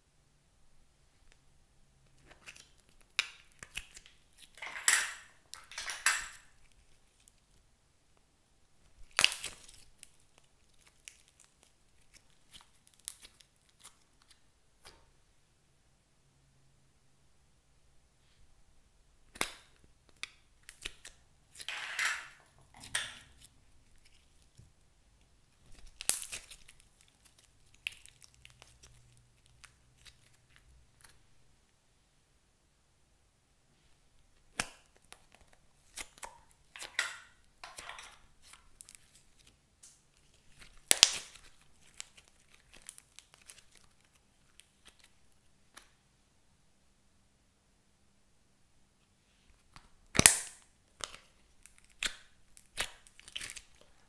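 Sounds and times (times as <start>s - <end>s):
sticky crackling slime: 8.9s - 14.4s, 22.8s - 31.2s, 34.4s - 45.9s, 49.6s - 54.0s.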